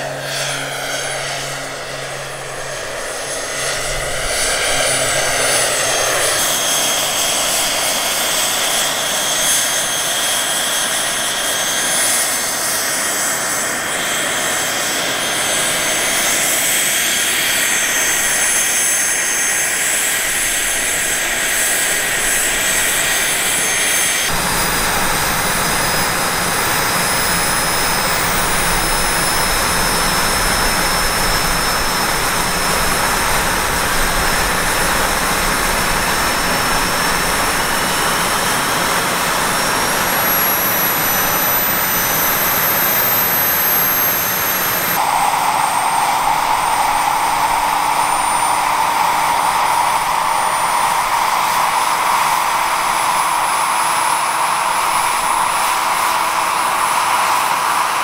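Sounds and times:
turbine engine whine: 0.0s - 58.0s
rotor rushing noise: 0.1s - 8.3s.

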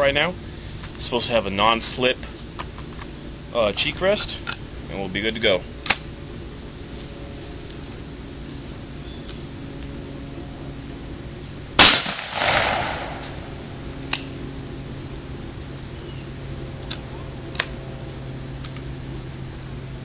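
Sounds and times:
rifle shot: 11.8s - 13.5s.

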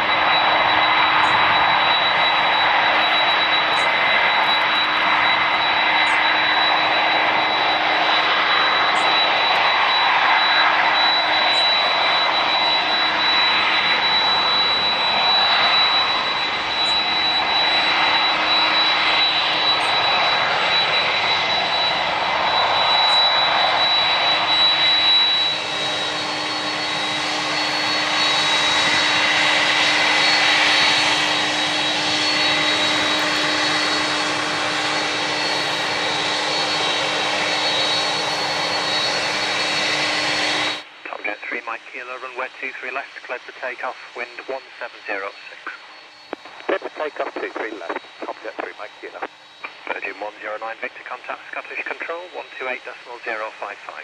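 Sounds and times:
high engine whine: 0.0s - 54.0s
jet engines rushing: 0.0s - 54.0s.

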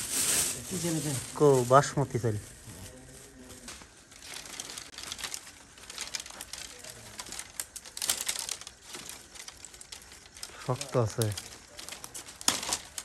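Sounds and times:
plastic bag rustling: 0.0s - 13.0s
dry branches snapping: 4.9s - 13.0s.

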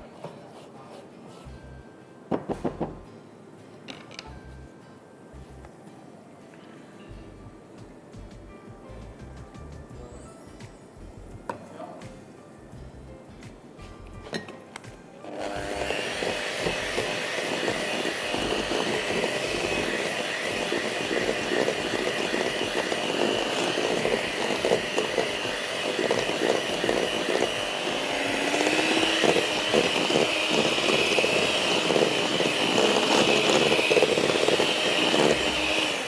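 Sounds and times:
electric mixer motor running: 15.3s - 36.0s.

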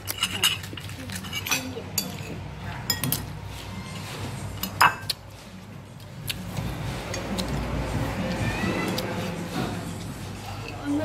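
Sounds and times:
spoons clinking on plates: 0.0s - 3.4s, 4.6s - 5.2s.

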